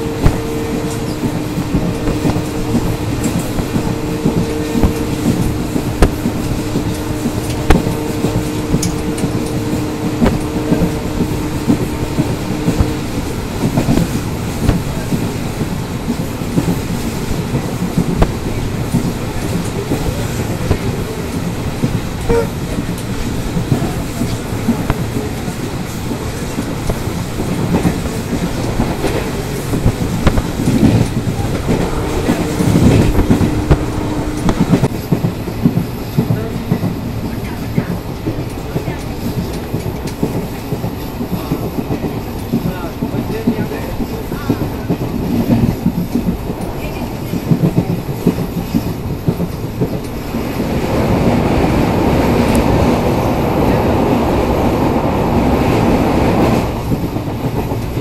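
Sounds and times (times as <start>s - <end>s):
train wheels clattering over rail joints: 0.0s - 58.0s
steady two-note tone: 22.3s - 22.6s.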